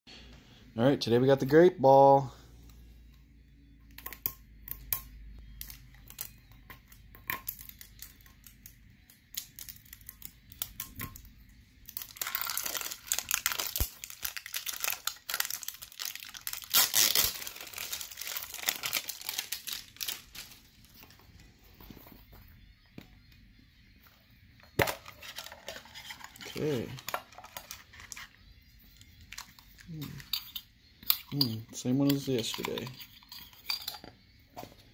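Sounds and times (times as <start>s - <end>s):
plastic wrap crinkling: 11.8s - 21.2s.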